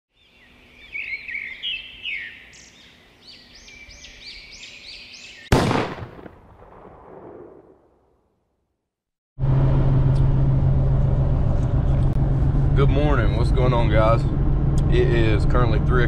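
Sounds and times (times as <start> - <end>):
birds chirping: 0.1 - 5.8
gunshot echoing: 5.5 - 8.1.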